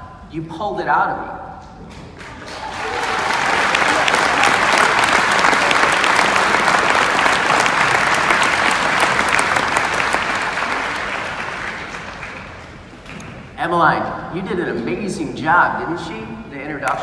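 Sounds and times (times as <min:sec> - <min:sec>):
crowd applauding: 0:02.1 - 0:13.3.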